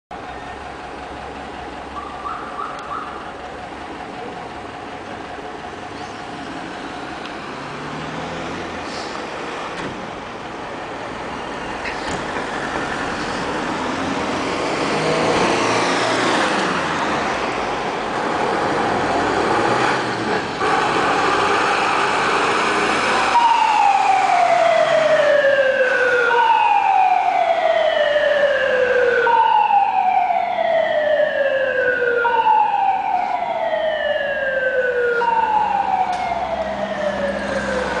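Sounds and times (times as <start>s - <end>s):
fire engine engine revving: 0.7s - 38.0s
fire engine siren: 1.9s - 3.5s, 12.5s - 38.0s.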